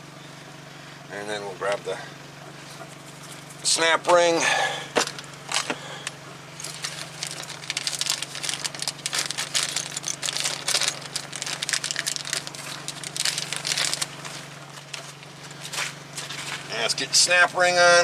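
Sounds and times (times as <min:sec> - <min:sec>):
plastic bag crinkling: 0:06.6 - 0:16.8.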